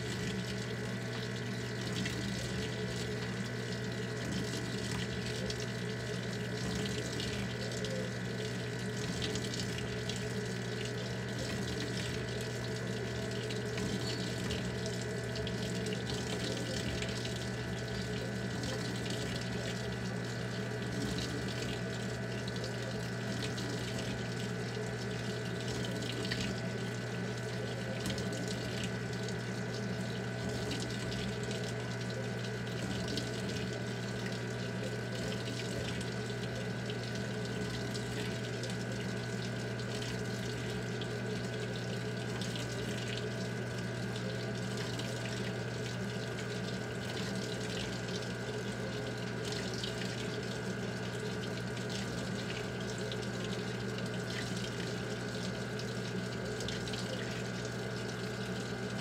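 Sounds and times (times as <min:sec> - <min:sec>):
water pouring into washing machine: 0:00.0 - 0:59.0.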